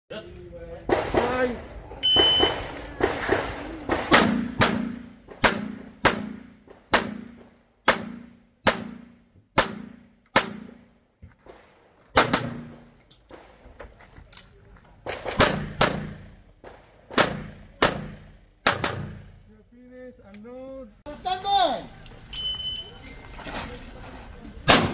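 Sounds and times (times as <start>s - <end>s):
pistol shots with echo: 0.9s - 10.9s, 12.2s - 12.9s, 15.0s - 19.4s.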